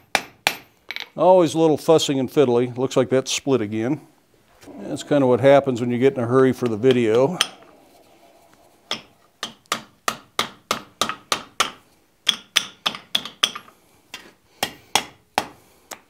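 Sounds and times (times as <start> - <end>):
hammer striking hot iron on anvil: 6.6 - 7.6.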